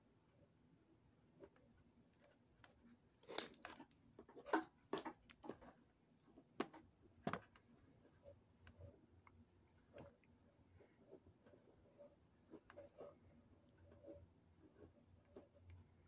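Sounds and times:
light clicks and knocks of plastic: 1.4s - 11.6s.

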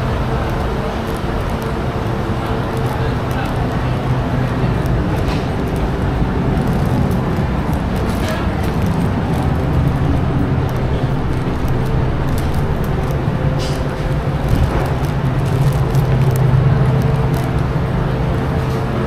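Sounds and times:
vehicle engines humming: 0.0s - 19.0s.

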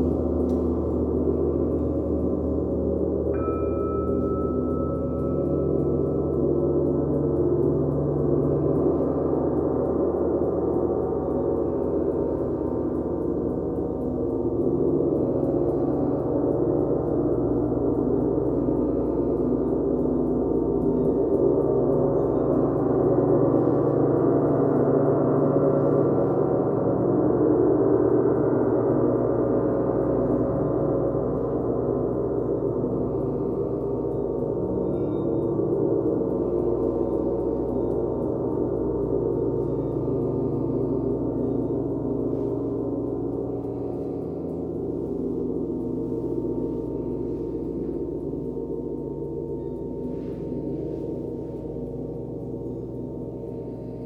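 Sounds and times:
gongs ringing: 0.0s - 54.0s.

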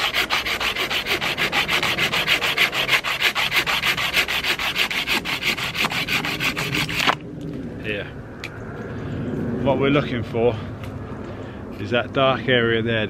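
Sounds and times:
pruning saw cutting wood: 0.0s - 7.2s.

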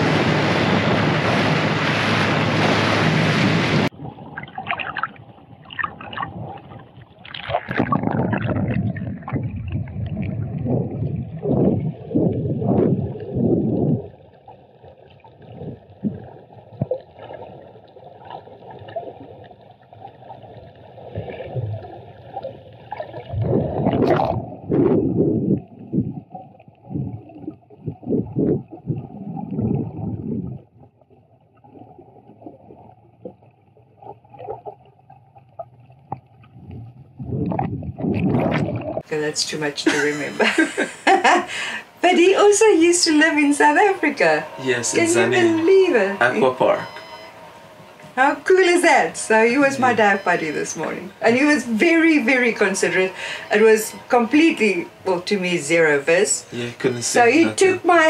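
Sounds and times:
exhaled bubbles gushing: 3.8s - 39.1s
muffled underwater audio: 5.7s - 14.1s, 22.9s - 30.6s, 36.6s - 58.0s
wind on microphone: 7.7s - 14.1s, 23.3s - 30.6s, 36.6s - 39.0s.

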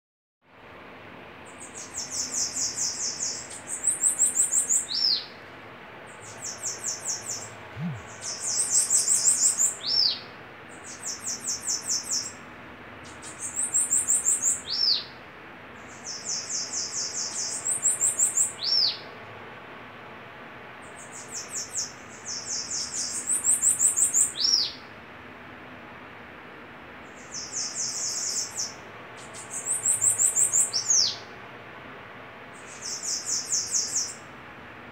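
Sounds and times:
birds singing buzzy trills: 1.4s - 12.4s, 13.0s - 19.2s, 20.8s - 24.9s, 27.0s - 31.3s, 32.5s - 34.3s.

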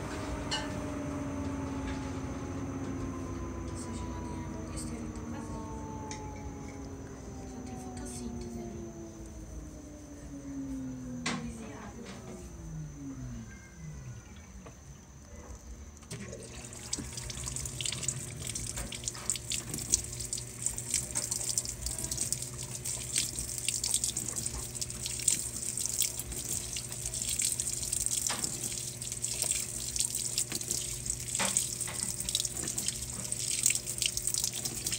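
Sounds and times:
steady low hum: 0.0s - 34.9s
water pouring into washing machine: 16.1s - 34.9s
water splashing on blanket: 16.1s - 34.9s.

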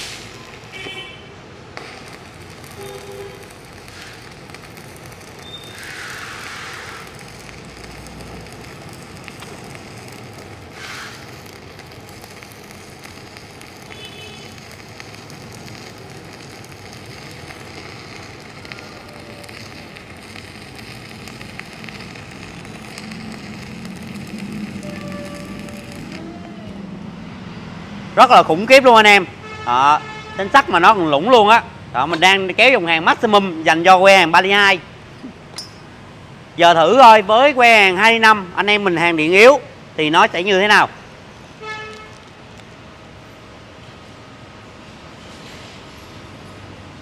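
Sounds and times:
welding arc crackling: 0.0s - 26.8s, 41.6s - 43.9s.

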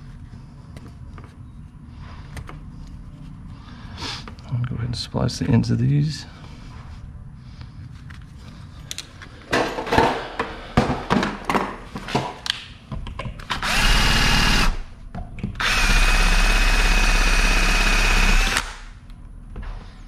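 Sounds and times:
cordless drill running: 13.5s - 14.8s, 15.6s - 18.9s.

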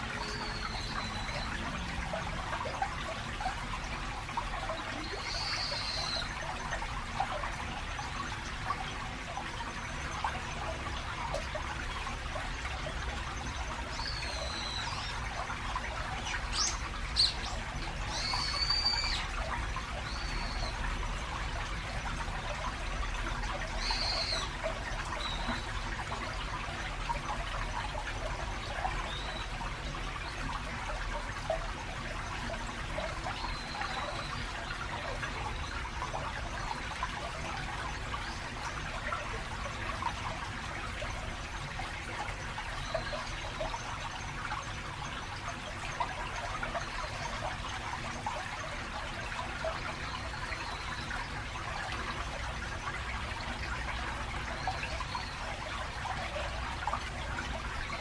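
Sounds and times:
stream trickling over stones: 0.0s - 58.0s
birds whistling: 18.1s - 19.2s.

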